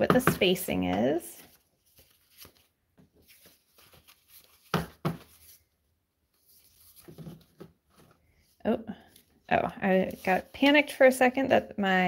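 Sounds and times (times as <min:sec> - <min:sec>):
paper rustling and sliding: 0:01.4 - 0:08.4.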